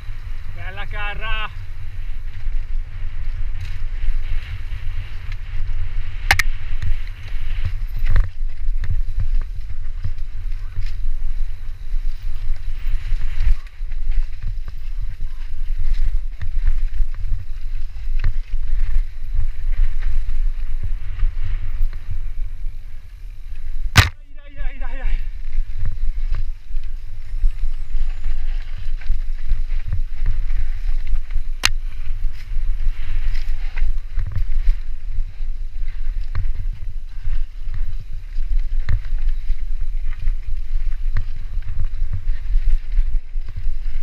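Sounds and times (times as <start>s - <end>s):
wind rumble on microphone: 0.0s - 44.0s
bike rattling and knocking: 1.7s - 20.9s.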